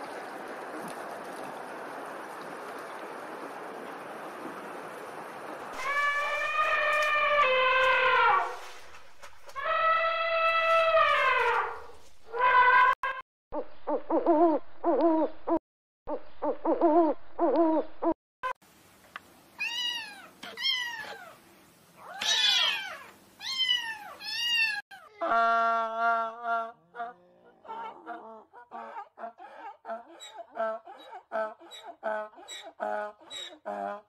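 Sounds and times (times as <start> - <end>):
elephant trumpeting: 5.8 - 8.6.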